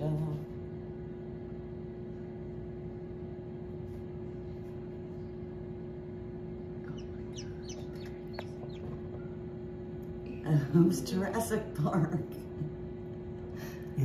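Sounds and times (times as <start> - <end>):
incubator hum: 0.0 - 14.0
chick peeping: 6.8 - 9.4.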